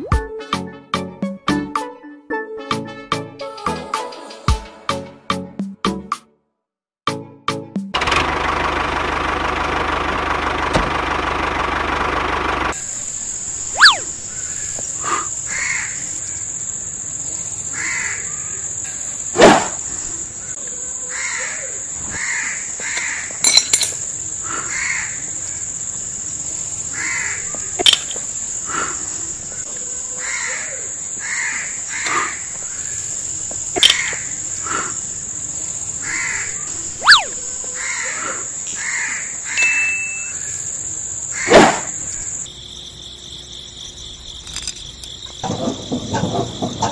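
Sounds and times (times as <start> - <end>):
music: 0.0 - 8.0
birds cawing: 13.6 - 16.4, 17.6 - 18.8, 19.9 - 23.4, 24.2 - 25.9, 26.8 - 27.8, 28.4 - 39.6, 40.3 - 42.4.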